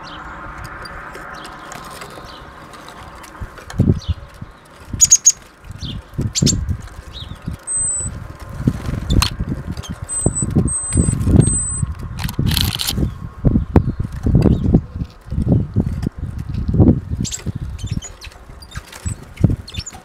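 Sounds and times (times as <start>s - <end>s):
bird wingbeats fluttering: 0.4s - 13.2s, 14.0s - 20.0s
high short bird calls: 3.9s - 8.2s
sharp clicks: 9.1s - 13.0s.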